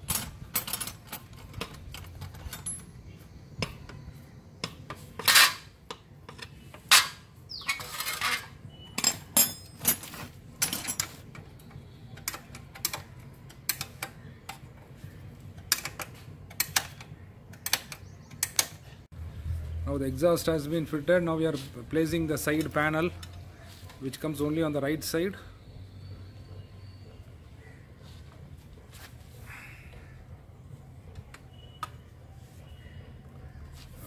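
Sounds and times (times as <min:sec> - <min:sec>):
metal clanks: 0:04.6 - 0:14.7
tools clinking on metal pipe: 0:06.3 - 0:14.7.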